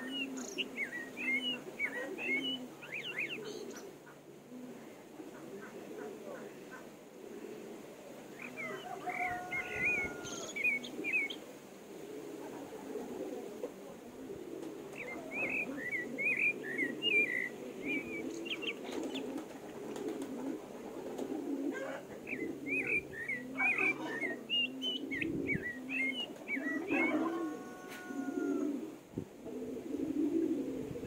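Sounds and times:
small birds twittering: 0.0s - 4.3s, 8.3s - 11.5s, 14.9s - 19.4s, 21.8s - 28.4s
low cooing: 0.0s - 31.0s
drawn-out bird call: 8.4s - 11.4s, 21.7s - 28.8s.

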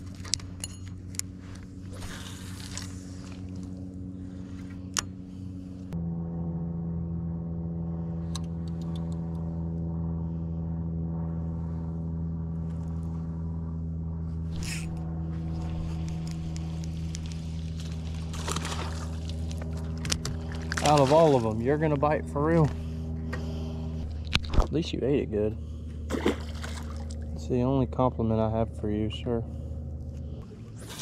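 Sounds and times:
boat motor humming: 0.0s - 31.0s.

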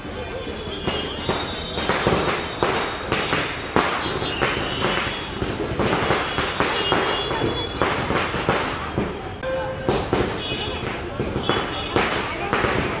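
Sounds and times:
firecrackers banging: 0.0s - 13.0s.

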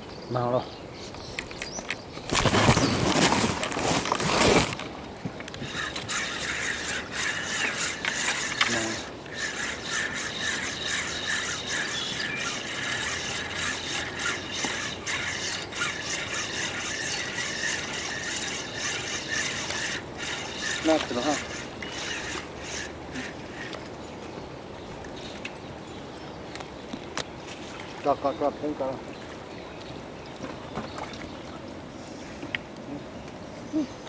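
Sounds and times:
fishing reel clicking: 5.6s - 23.8s.

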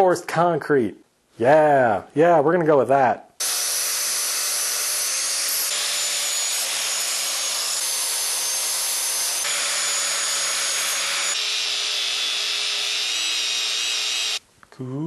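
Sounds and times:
angle grinder grinding metal: 3.4s - 14.4s.

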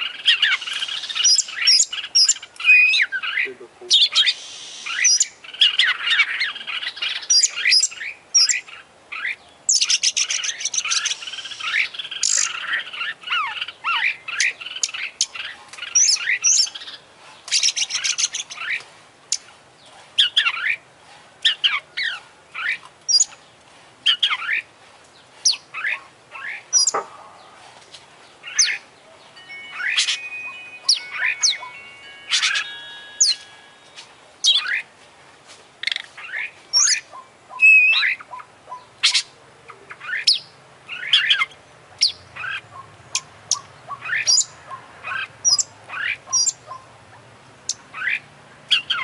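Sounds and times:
songbird whistles and trills: 0.1s - 19.5s, 28.4s - 34.9s, 35.8s - 39.3s.

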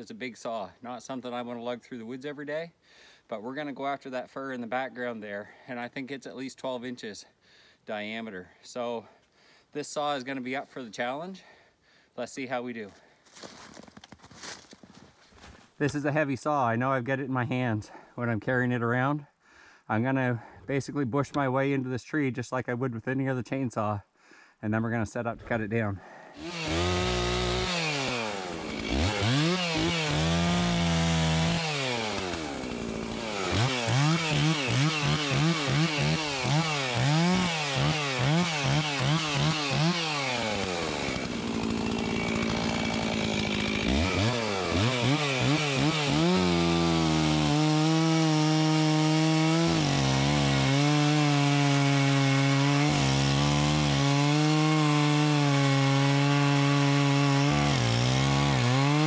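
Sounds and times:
chainsaw revving and cutting: 26.4s - 59.0s.

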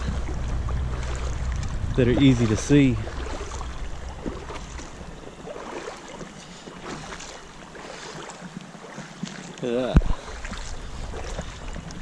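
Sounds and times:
low rumble: 0.0s - 5.6s
footsteps splashing through creek: 0.0s - 12.0s.

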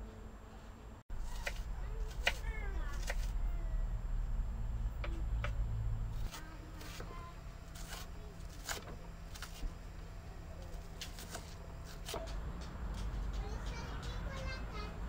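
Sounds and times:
low background rumble: 0.0s - 15.0s
knife chopping on wooden board: 1.2s - 2.4s, 3.0s - 3.3s, 7.8s - 9.6s, 11.0s - 12.4s.

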